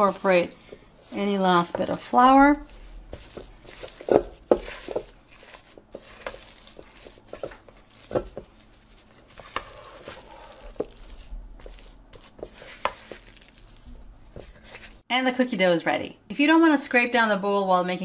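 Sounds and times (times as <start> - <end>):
spatula scraping dough in bowl: 0.0 - 15.0
spatula knocking metal bowl: 3.1 - 8.6.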